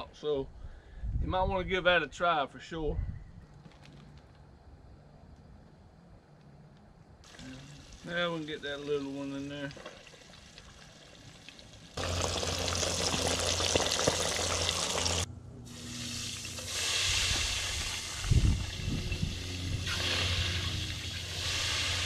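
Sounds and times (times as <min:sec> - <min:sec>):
fish sizzling in hot oil: 0:10.0 - 0:22.0.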